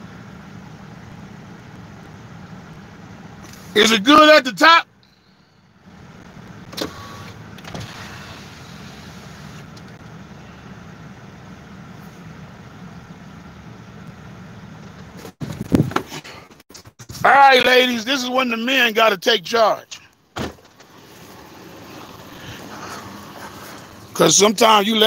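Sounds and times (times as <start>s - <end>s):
engine and tyre rumble: 0.0s - 17.6s, 18.4s - 25.0s.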